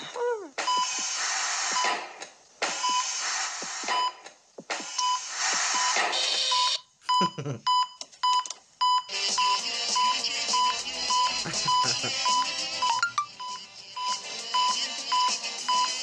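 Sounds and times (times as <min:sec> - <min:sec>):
rhythmic whooshing hiss: 0:00.0 - 0:06.5, 0:09.1 - 0:16.0
heart monitor beeping: 0:00.6 - 0:02.0, 0:02.7 - 0:04.2, 0:04.8 - 0:16.0
music: 0:09.1 - 0:16.0.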